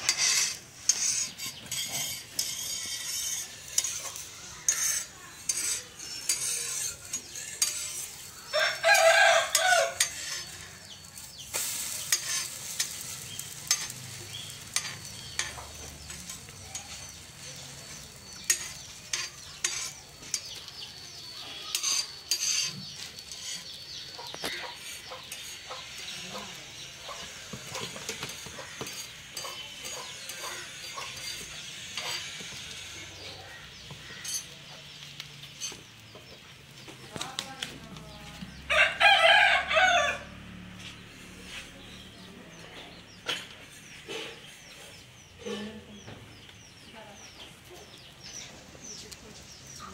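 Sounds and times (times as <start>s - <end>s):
dosa sizzling on iron griddle: 0.0s - 49.9s
rooster crowing: 8.5s - 10.1s, 38.7s - 40.4s.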